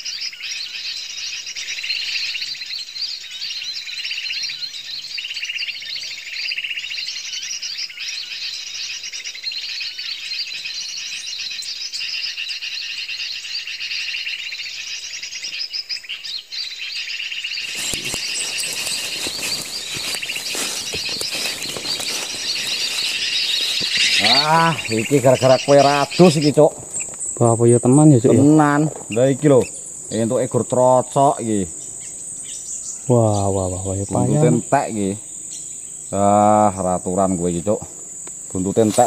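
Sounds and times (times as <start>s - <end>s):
small birds chirping: 0.0s - 39.0s
crackling and rustling brush: 17.6s - 27.4s, 37.8s - 39.0s.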